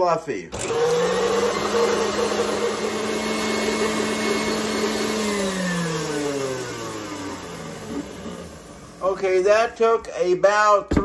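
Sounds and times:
stand mixer motor hum: 0:00.6 - 0:09.1.

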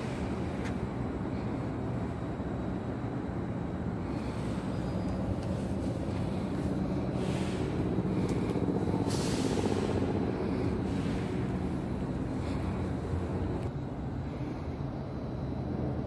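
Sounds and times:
train rumbling: 0:00.0 - 0:14.2
short hisses: 0:09.0 - 0:12.2.

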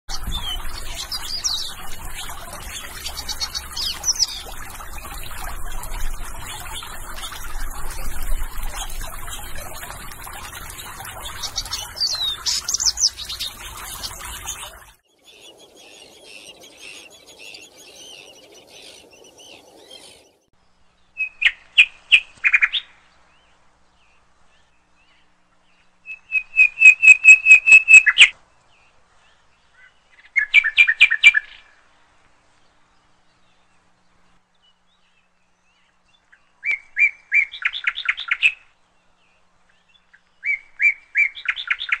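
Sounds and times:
water trickling and splashing: 0:00.0 - 0:20.4
songbird chirping: 0:00.1 - 0:42.0
bird call: 0:26.1 - 0:28.3.

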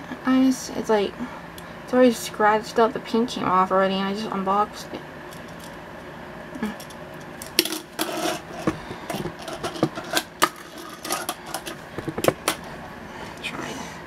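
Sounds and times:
small wheels rolling and scraping: 0:07.6 - 0:12.6.

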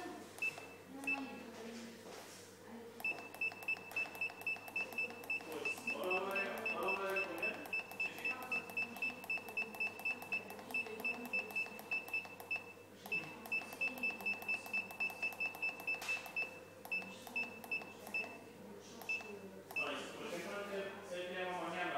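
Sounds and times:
control panel beeping: 0:00.4 - 0:01.4, 0:03.0 - 0:18.4, 0:19.0 - 0:19.9.

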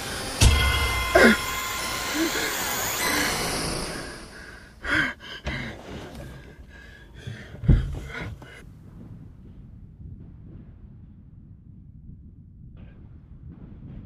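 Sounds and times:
man gasping for breath: 0:04.3 - 0:08.6
low thump: 0:07.2 - 0:11.2.

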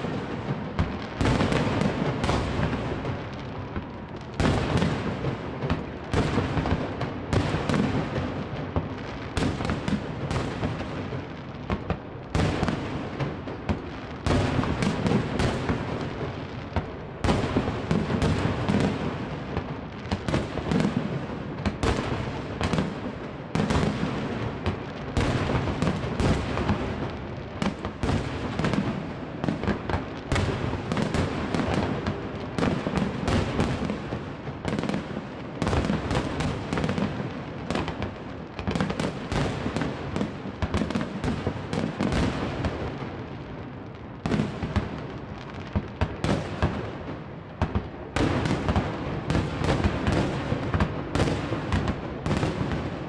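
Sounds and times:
fireworks bursting: 0:00.0 - 0:43.4, 0:44.2 - 0:53.0
fireworks crackling: 0:00.0 - 0:53.0.

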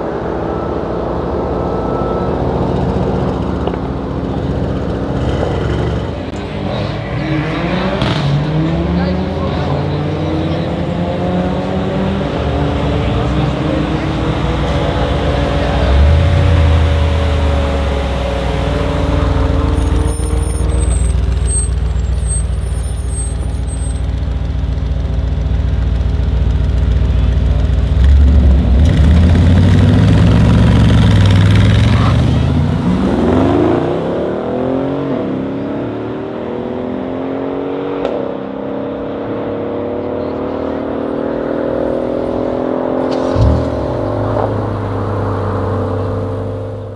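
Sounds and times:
car engines revving: 0:00.0 - 0:46.9.

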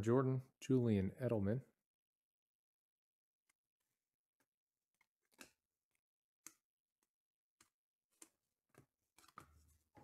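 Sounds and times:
cards sliding and snapping: 0:05.3 - 0:05.6, 0:07.6 - 0:10.0.

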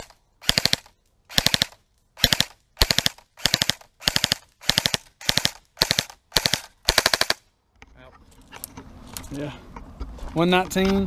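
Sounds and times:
airsoft rifle firing bursts: 0:00.0 - 0:07.4.

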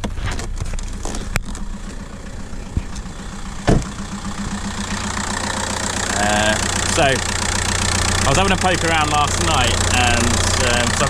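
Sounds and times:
diesel engine idling: 0:00.5 - 0:11.0
loud thump: 0:03.6 - 0:04.6.

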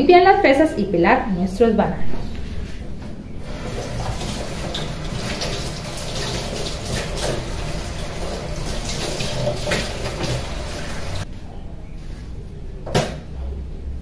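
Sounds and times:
tap running into metal sink: 0:03.5 - 0:11.2
water splashing over strawberries: 0:03.5 - 0:11.2.

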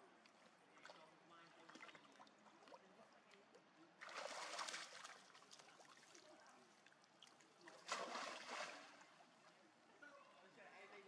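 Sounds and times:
water splashing: 0:04.0 - 0:06.1, 0:07.7 - 0:09.0.

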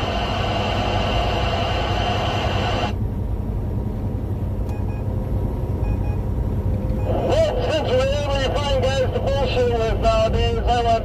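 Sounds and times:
road noise: 0:00.0 - 0:11.0
truck engine rumble: 0:00.0 - 0:11.0
faint short beeps: 0:04.7 - 0:05.1, 0:05.8 - 0:06.3.

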